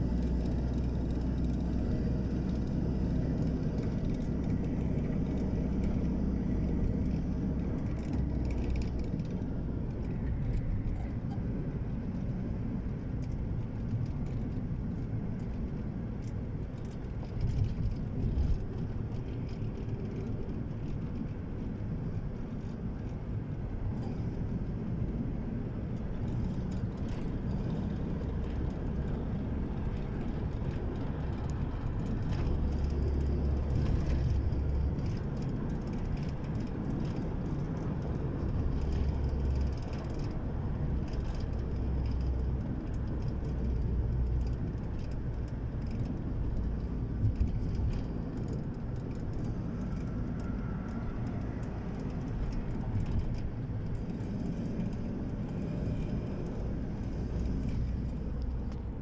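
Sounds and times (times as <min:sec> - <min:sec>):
car interior road noise: 0:00.0 - 0:59.0.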